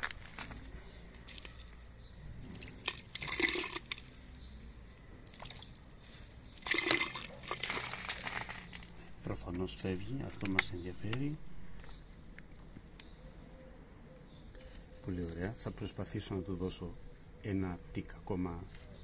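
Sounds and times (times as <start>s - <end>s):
water trickling along metal gutter: 1.1s - 4.3s, 5.2s - 5.9s, 6.5s - 8.8s.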